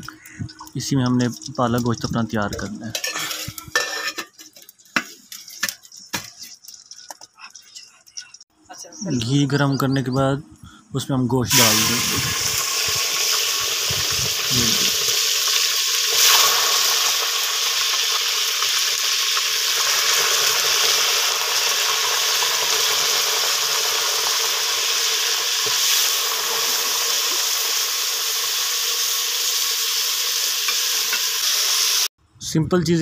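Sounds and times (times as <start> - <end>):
meat sizzling in a pot: 0.2 - 7.3, 11.5 - 32.1.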